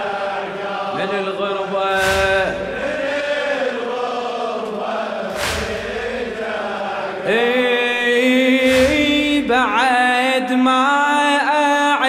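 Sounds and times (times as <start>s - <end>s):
men chanting in unison: 0.0s - 12.0s
heavy rhythmic thump: 1.9s - 7.4s, 8.4s - 10.0s.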